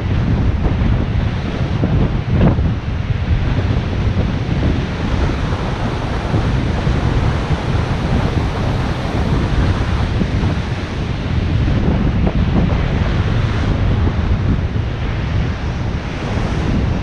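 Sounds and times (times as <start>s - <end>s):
surf breaking on shore: 0.0s - 17.0s
wind rushing over microphone: 0.0s - 17.0s.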